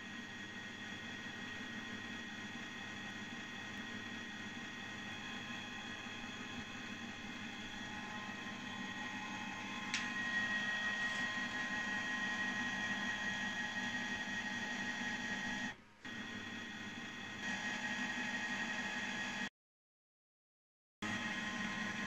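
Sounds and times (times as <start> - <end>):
printer whirring: 0.0 - 19.5, 21.0 - 22.0.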